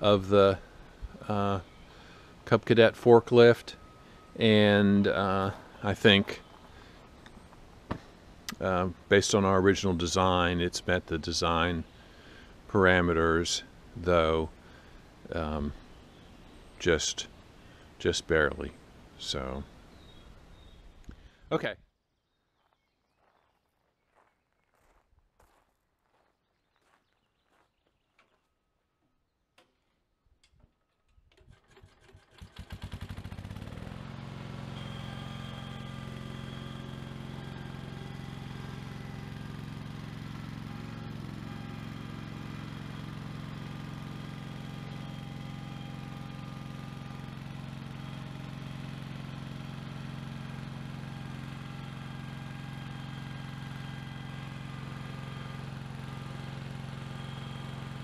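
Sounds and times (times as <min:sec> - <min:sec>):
engine running: 0:00.0 - 0:21.3, 0:31.3 - 0:58.0
starter cranking engine: 0:31.3 - 0:34.6.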